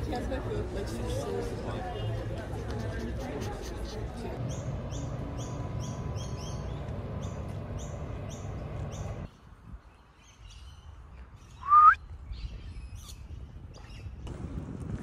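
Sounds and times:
outdoor background noise: 0.0s - 15.0s
birds chirping: 3.3s - 14.2s
short rising bird call: 11.6s - 12.0s.

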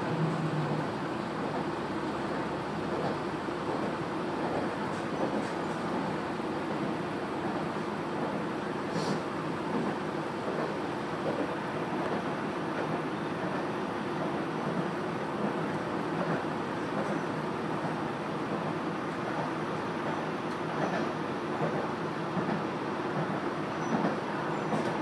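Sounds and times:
railcar engine and wheels rumbling: 0.0s - 25.0s.

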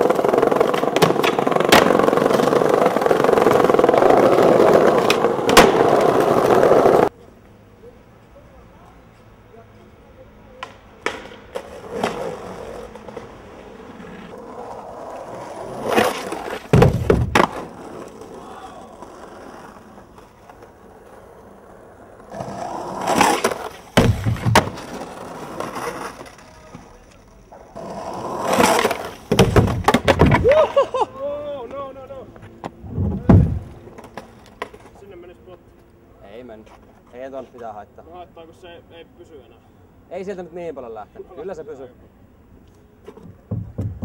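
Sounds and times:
skateboard clacks and bangs: 0.0s - 7.1s, 15.8s - 18.0s, 23.0s - 26.3s, 28.4s - 30.6s, 43.2s - 44.0s
skateboard wheels rolling on pavement: 0.0s - 44.0s.

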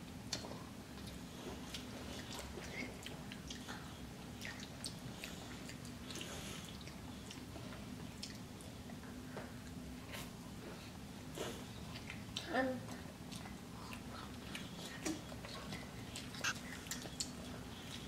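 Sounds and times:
low steady hum: 0.0s - 18.0s
mouth clicks and smacks: 16.2s - 18.0s.

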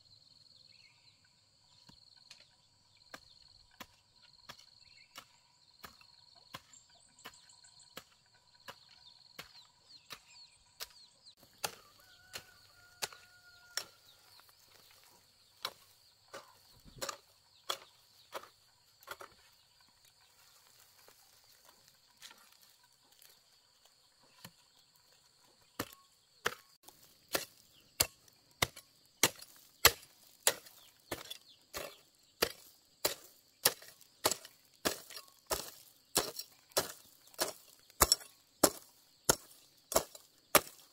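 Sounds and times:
hoe chopping into dry soil: 3.1s - 19.5s, 25.6s - 40.9s.

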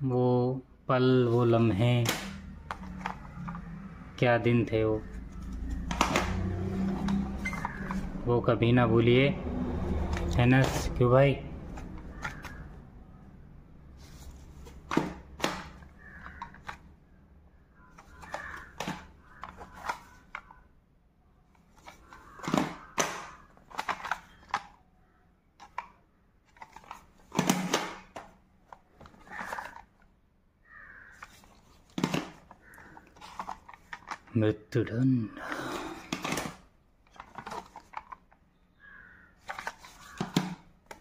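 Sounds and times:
plastic cassette cases clacking: 1.9s - 3.8s, 5.0s - 8.2s, 10.1s - 12.8s, 14.1s - 17.0s, 17.8s - 20.6s, 21.6s - 24.8s, 25.6s - 30.1s, 31.1s - 34.4s, 35.4s - 38.5s, 39.4s - 41.0s
rustling: 31.0s - 34.3s, 39.4s - 40.4s.

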